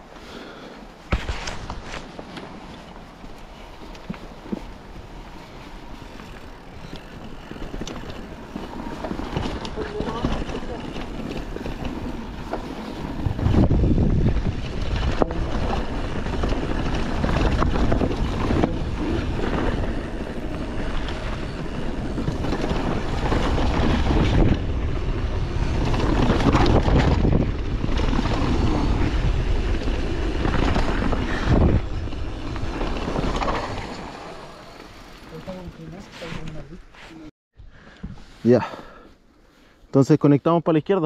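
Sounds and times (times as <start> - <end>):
bike knocking and rattling: 1.0 - 36.7
tyres rumbling over dirt: 3.6 - 36.1
wind rushing over microphone: 4.5 - 34.6.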